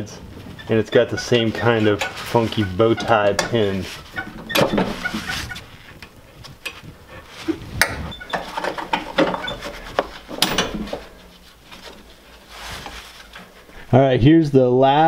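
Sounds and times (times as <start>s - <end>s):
glove rustling: 9.6s - 14.0s.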